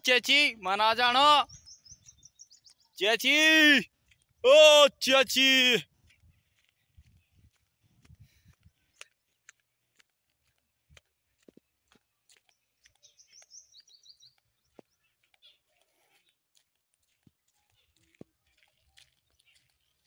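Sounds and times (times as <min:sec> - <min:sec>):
high bird chirps: 0:01.2 - 0:03.0.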